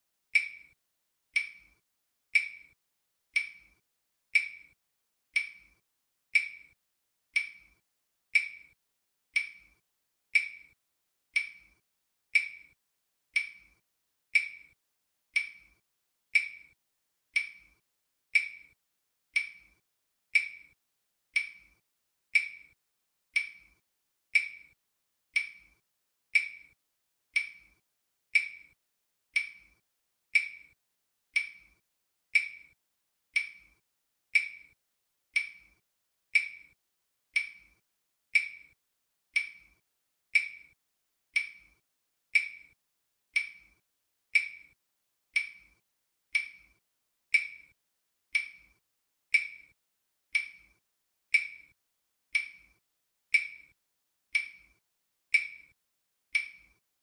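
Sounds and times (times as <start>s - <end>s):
countdown timer ticks: 33.4s - 33.8s, 43.4s - 43.8s, 46.4s - 47.7s, 48.4s - 49.7s, 50.4s - 50.7s, 51.3s - 51.7s, 52.4s - 53.7s, 54.4s - 55.7s, 56.4s - 56.8s.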